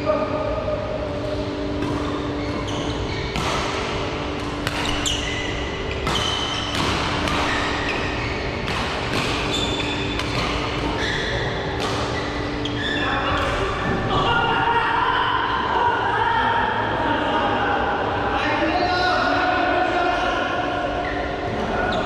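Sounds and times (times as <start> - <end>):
echoing hall noise: 0.0 - 22.0
shoes squeaking on court: 1.6 - 13.7
racket hitting shuttlecock: 3.2 - 12.5.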